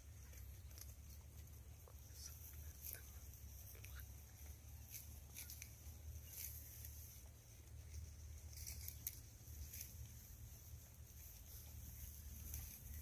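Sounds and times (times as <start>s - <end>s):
faint high-pitched ticks: 0.1s - 6.7s.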